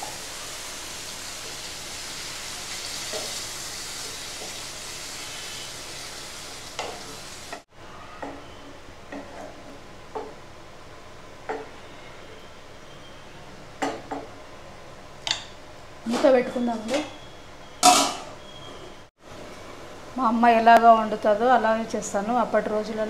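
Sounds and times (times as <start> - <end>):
curry sizzling and bubbling in pan: 0.0 - 7.7.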